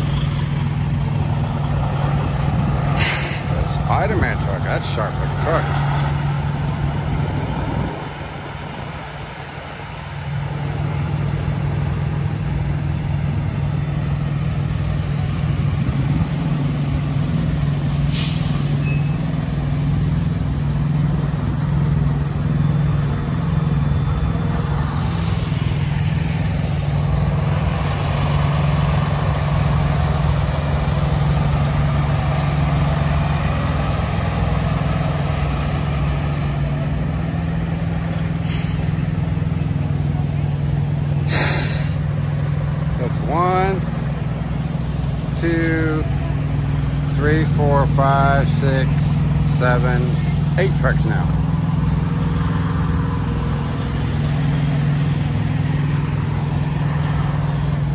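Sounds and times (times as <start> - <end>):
diesel truck engine idling: 0.0 - 57.9
air brake hiss: 3.0 - 3.7, 17.9 - 19.3, 38.3 - 39.2, 41.2 - 42.0.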